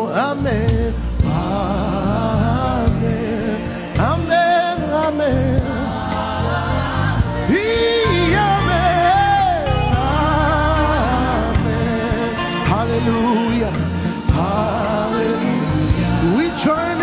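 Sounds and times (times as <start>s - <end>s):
keyboard-led band: 0.0s - 17.0s
choir singing: 1.2s - 17.0s
person singing with vibrato: 6.9s - 17.0s.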